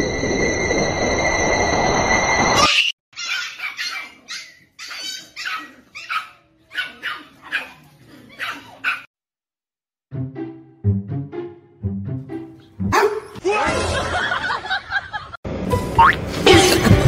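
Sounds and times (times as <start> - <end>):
small dog yapping: 3.2 - 9.1.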